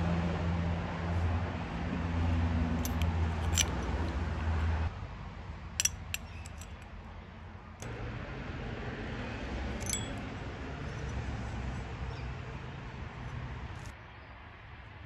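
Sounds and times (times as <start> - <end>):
metal parts clicking and clinking: 2.8 - 4.2, 5.8 - 7.0, 9.8 - 10.3.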